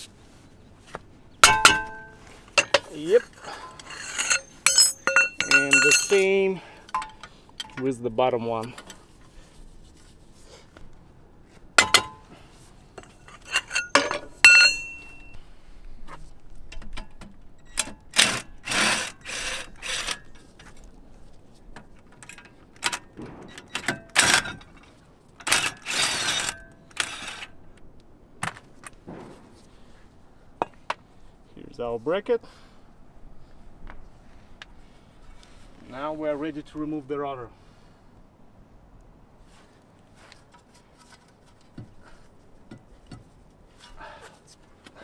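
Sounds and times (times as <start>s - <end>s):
metal rattling and scraping: 1.4s - 8.0s, 11.8s - 15.3s, 21.8s - 27.6s
metal tools clinking: 1.4s - 8.0s, 11.8s - 12.3s, 13.0s - 15.4s.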